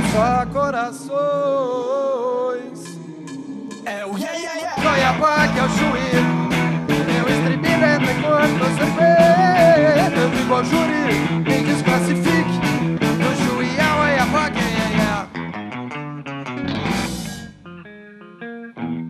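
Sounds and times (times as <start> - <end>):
rock band playing live: 0.0 - 0.7, 4.7 - 19.0
bending lead guitar melody: 0.0 - 19.0.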